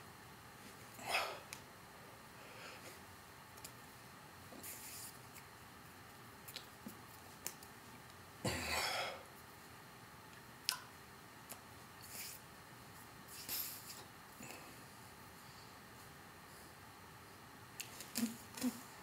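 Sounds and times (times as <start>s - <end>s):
soft breaths: 0.6s - 3.1s, 13.3s - 19.0s.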